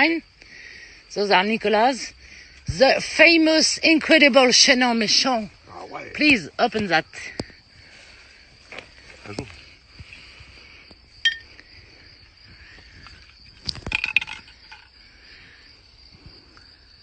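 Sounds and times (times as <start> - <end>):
insects droning: 0.0 - 17.0
glass clink: 11.2 - 11.5.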